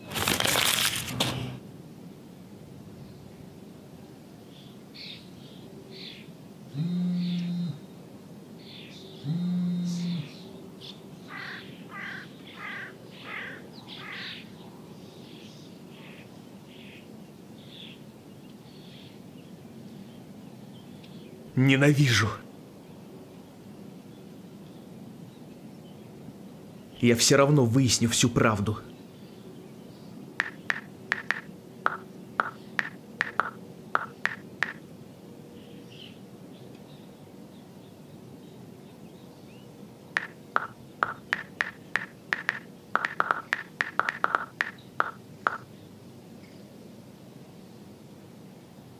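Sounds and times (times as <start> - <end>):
steady background noise: 0.0 - 48.9
birds calling: 8.7 - 17.0, 28.8 - 34.8, 39.5 - 45.9
phone keyboard taps: 30.4 - 34.8, 40.2 - 45.6.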